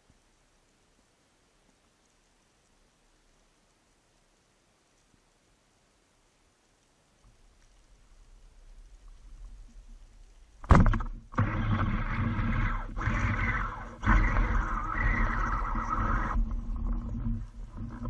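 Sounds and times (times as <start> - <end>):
speargun firing underwater: 10.6 - 17.0
churning water: 10.6 - 18.0.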